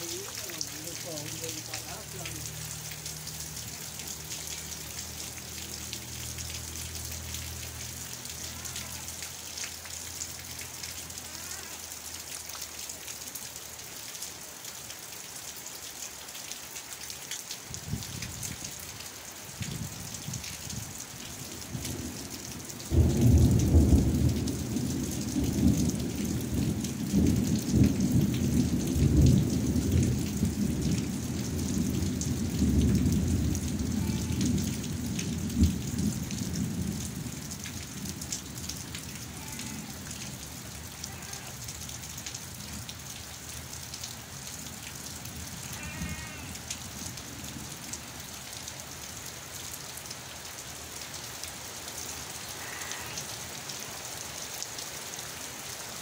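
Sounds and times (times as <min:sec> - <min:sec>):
steady rain: 0:00.0 - 0:56.0
thunder rumbling: 0:22.9 - 0:39.8.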